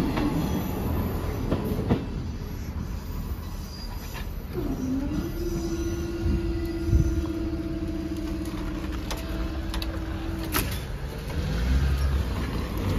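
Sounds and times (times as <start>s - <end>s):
road traffic rumble: 0.0s - 12.9s
barrier motor humming: 4.5s - 12.2s
barrier clunk: 7.9s - 11.1s.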